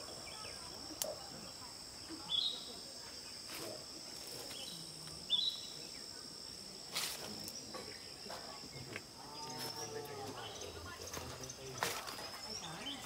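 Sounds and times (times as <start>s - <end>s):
bird chirps: 0.0s - 2.8s, 4.5s - 6.1s
insects droning: 0.0s - 13.0s.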